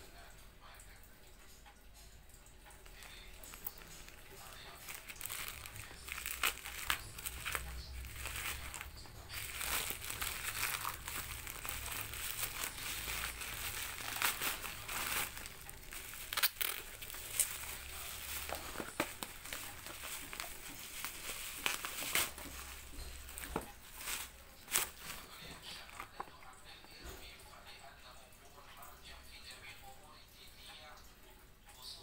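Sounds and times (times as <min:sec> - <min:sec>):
plastic packaging crinkling: 0:02.6 - 0:26.7.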